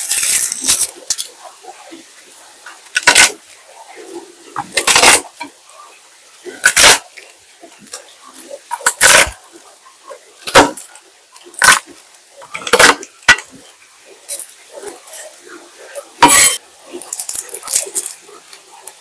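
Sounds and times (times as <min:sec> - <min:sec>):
rough scrapes or squelches: 0:00.0 - 0:01.3, 0:03.0 - 0:03.4, 0:04.5 - 0:05.4, 0:06.5 - 0:07.0, 0:08.7 - 0:09.4, 0:11.6 - 0:13.6, 0:14.3 - 0:18.2.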